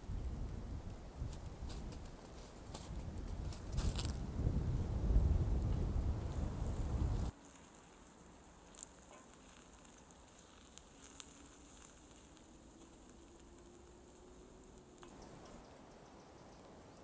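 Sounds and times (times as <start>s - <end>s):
onions sizzling in a pan: 7.4s - 15.0s
faint clicks: 8.6s - 16.8s.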